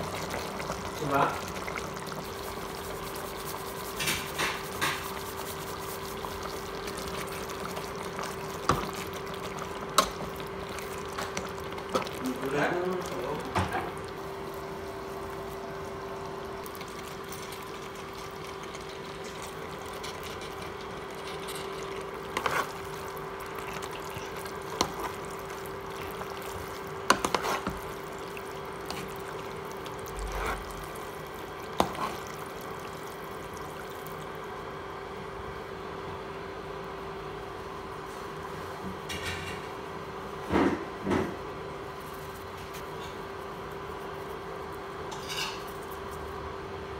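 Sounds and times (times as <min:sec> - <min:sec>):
pasta stirred in sauce: 0:00.0 - 0:34.5
steady hum: 0:00.0 - 0:46.9.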